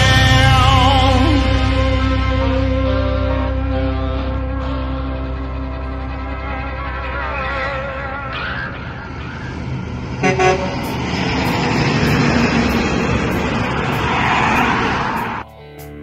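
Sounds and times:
truck passing by: 0.0 - 15.5
truck horn toot: 2.4 - 15.4.

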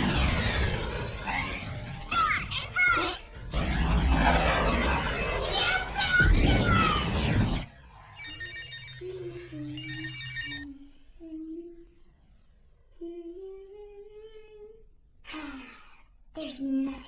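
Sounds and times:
loud noisy passage: 0.0 - 9.7
mobile phone ringing: 8.2 - 10.7
person humming a slow tune: 10.7 - 12.0, 12.9 - 14.9.

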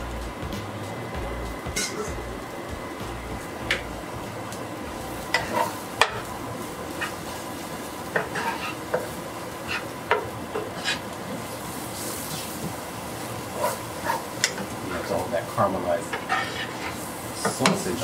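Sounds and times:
food sizzling in a frying pan: 0.0 - 18.0
utensil scraping a pan: 5.3 - 6.3, 8.1 - 11.1, 13.5 - 15.2, 16.1 - 17.8.

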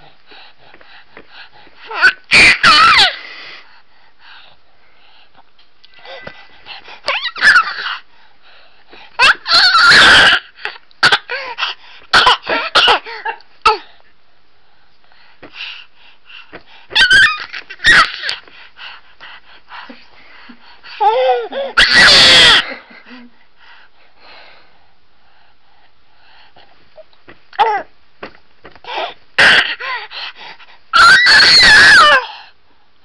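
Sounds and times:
infant screaming and squealing: 1.9 - 3.2, 7.1 - 7.9, 9.2 - 10.5, 17.0 - 18.3, 21.1 - 22.8, 31.0 - 32.2.

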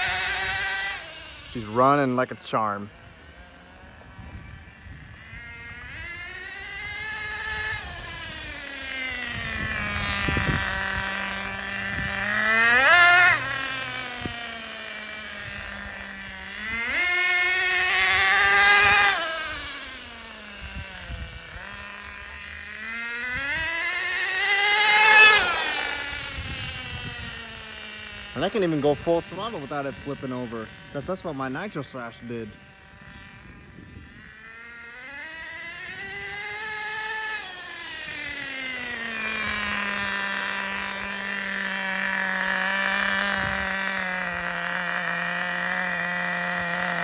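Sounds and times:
small nitro engine revving: 0.0 - 47.0.

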